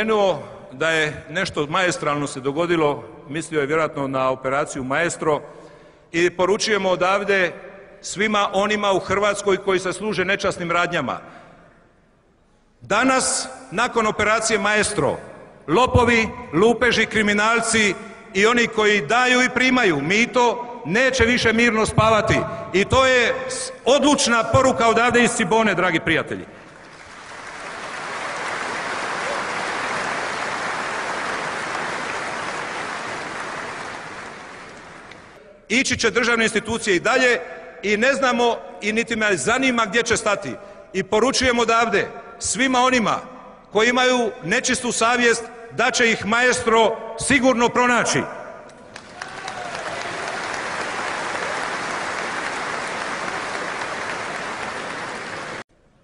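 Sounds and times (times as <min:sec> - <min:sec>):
crowd applauding: 0:26.6 - 0:35.4, 0:48.8 - 0:55.6.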